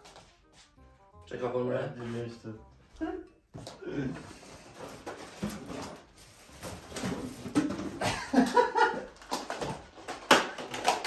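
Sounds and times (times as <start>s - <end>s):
person's wordless vocal sounds: 3.1s - 4.3s.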